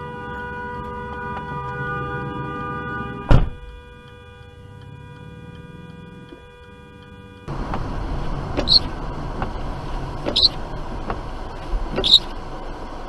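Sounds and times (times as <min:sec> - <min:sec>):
road and engine noise: 0:00.0 - 0:13.0
sharp thump: 0:03.3 - 0:03.7
car indicator relay ticking: 0:03.6 - 0:12.5.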